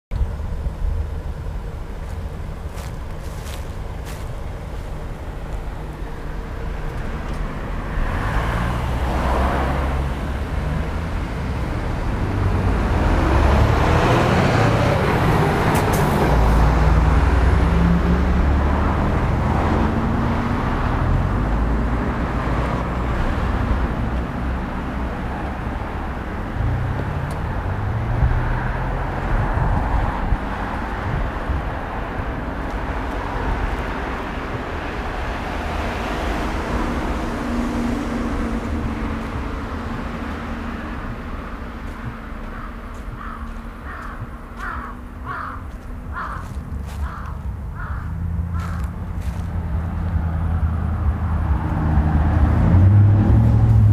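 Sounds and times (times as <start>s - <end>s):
road traffic passing: 0.1s - 53.9s
engine climbing in pitch: 0.2s - 53.9s.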